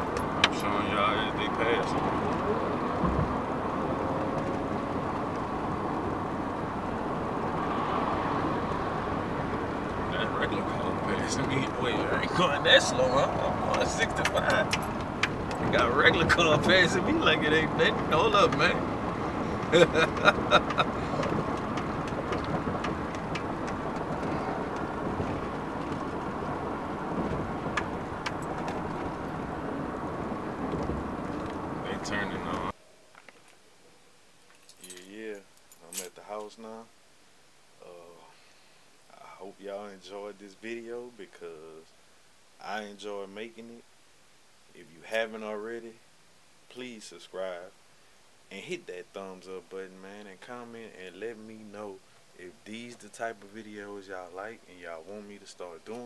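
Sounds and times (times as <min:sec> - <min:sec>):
car road and wind noise: 0:00.0 - 0:34.3.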